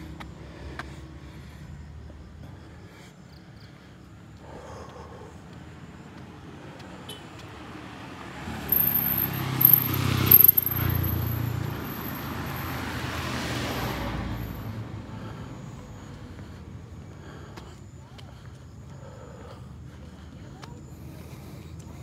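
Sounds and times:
car driving past on asphalt: 5.8s - 17.0s.

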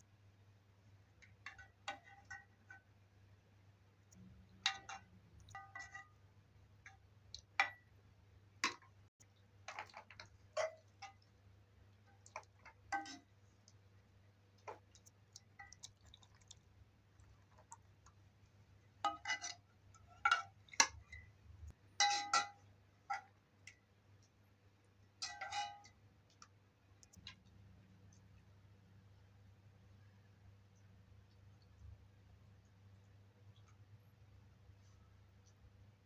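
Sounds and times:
metal spoon clinking on metal pot: 4.6s - 6.2s, 19.0s - 21.3s, 22.0s - 23.4s, 25.2s - 26.0s.

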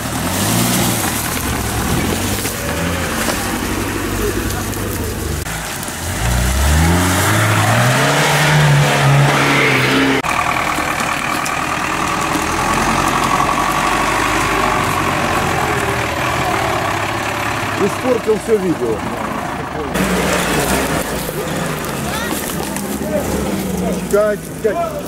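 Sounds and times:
truck engine whining: 0.0s - 25.0s
small engine revving hard: 5.7s - 10.3s.

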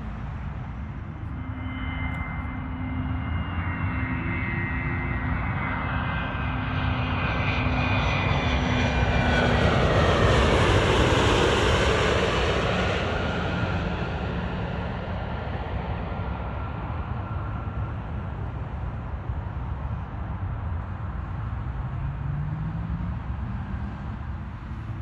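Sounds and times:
jet engine whine and roar: 0.0s - 25.0s.

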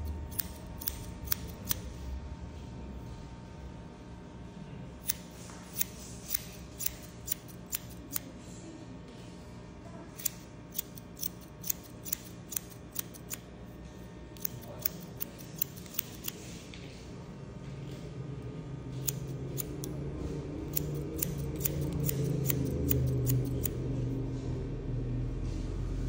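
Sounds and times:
shears snipping hair: 0.0s - 2.0s, 5.0s - 8.3s, 10.1s - 16.7s, 18.9s - 20.0s, 20.6s - 23.8s.

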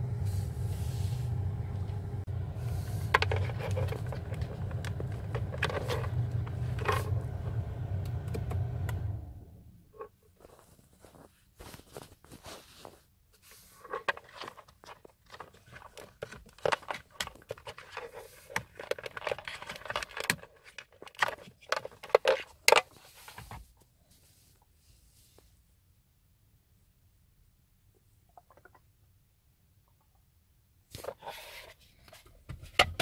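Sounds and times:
plastic case clicks and scrapes: 2.9s - 7.4s, 13.5s - 23.6s.

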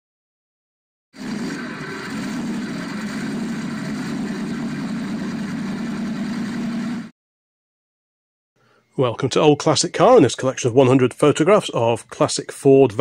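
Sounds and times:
vehicle engine idling: 1.2s - 7.1s.

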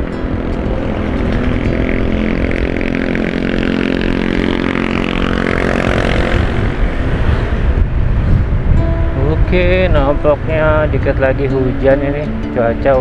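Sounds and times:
motorcycle engine running: 0.0s - 12.6s.

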